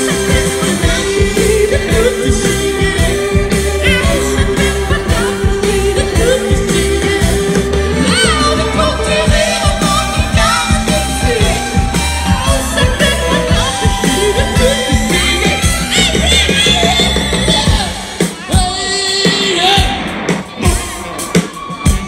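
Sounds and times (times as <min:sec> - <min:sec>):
saxophone: 0:00.0 - 0:20.0
person singing: 0:00.0 - 0:21.3
drums: 0:00.0 - 0:22.0
electric guitars: 0:00.0 - 0:22.0.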